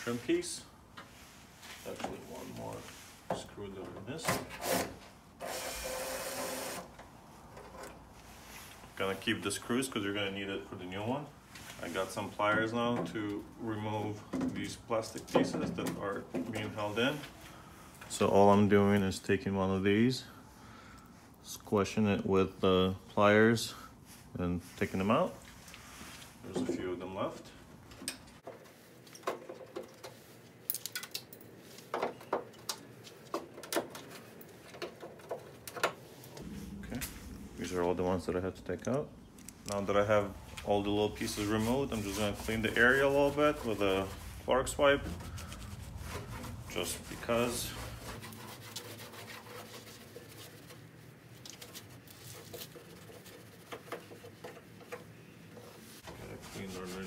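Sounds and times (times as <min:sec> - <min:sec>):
wipe rubbing scratchily: 0:40.2 - 0:54.8, 0:55.6 - 0:57.0.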